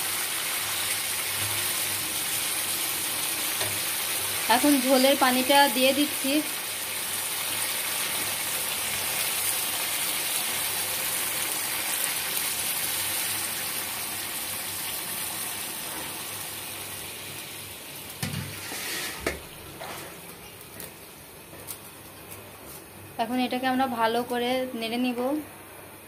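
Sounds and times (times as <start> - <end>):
sizzling hiss: 0.0 - 20.9.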